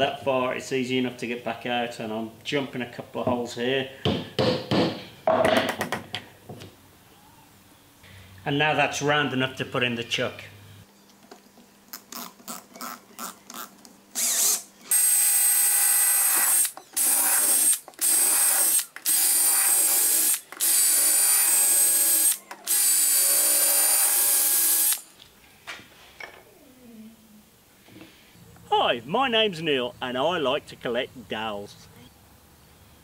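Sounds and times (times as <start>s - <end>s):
hand drill whining: 14.2s - 25.0s.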